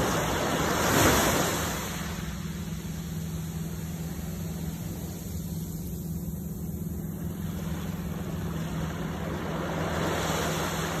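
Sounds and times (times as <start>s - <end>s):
surf washing up a sandy beach: 0.0s - 2.4s, 7.2s - 11.0s
steady low rumble: 0.0s - 11.0s.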